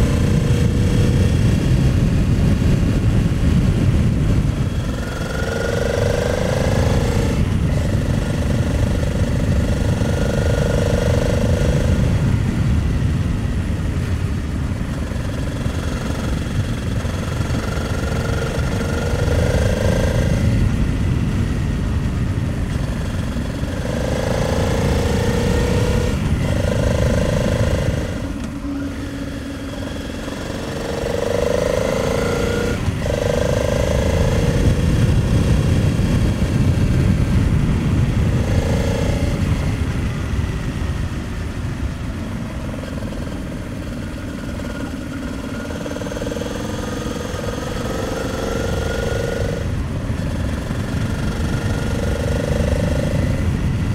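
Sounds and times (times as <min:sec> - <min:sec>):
motorcycle engine revving: 0:00.0 - 0:53.9
wind rushing: 0:00.0 - 0:53.9.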